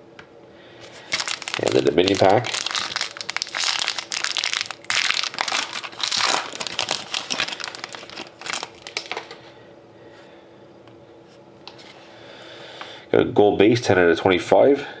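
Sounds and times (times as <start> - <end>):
foil wrapper crinkling: 0.8 - 9.4.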